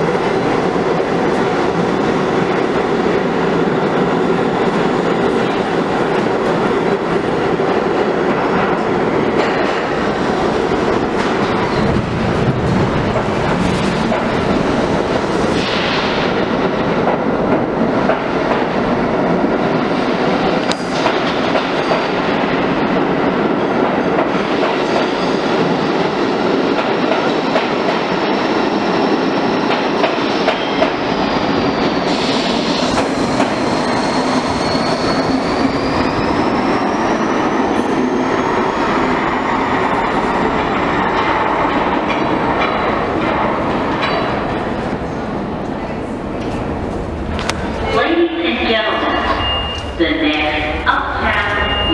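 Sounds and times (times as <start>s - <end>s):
subway train wheels clattering: 0.0s - 51.9s.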